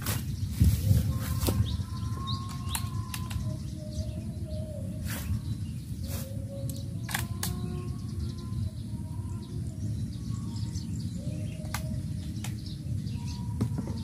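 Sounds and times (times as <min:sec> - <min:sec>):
birds chirping: 0:00.0 - 0:14.0
sharp clicks: 0:06.7 - 0:07.7.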